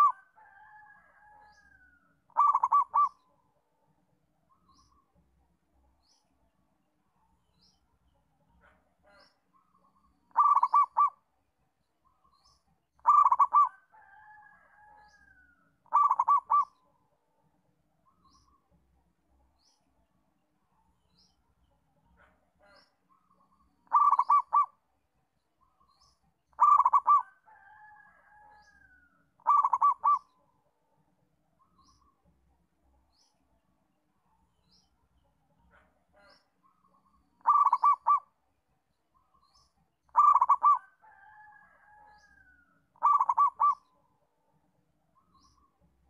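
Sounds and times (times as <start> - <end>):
dove cooing: 0.0 - 0.3, 2.3 - 3.2, 10.3 - 11.2, 13.0 - 13.9, 15.9 - 16.8, 23.8 - 24.8, 26.5 - 27.9, 29.4 - 30.4, 37.4 - 38.3, 40.1 - 42.0, 43.0 - 43.9
small birds chirping: 4.4 - 13.8, 18.0 - 30.9, 31.5 - 42.4, 43.0 - 46.0.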